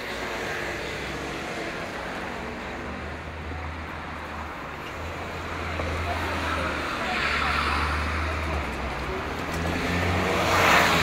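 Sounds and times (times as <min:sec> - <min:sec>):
traffic engine rumble: 0:00.0 - 0:11.0.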